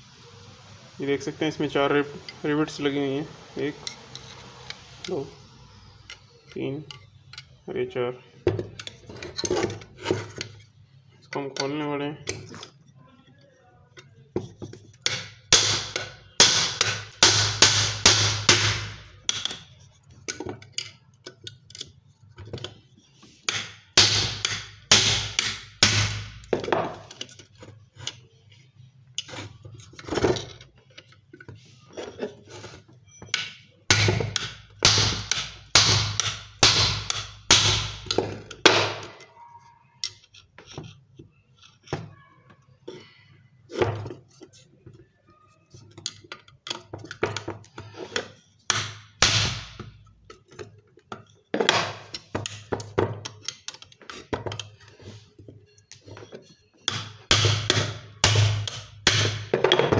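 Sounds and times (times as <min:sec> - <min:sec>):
hammer striking chisel on metal: 0:15.0 - 0:19.7, 0:23.5 - 0:27.2, 0:33.3 - 0:39.2, 0:48.7 - 0:50.0, 0:56.5 - 0:59.9.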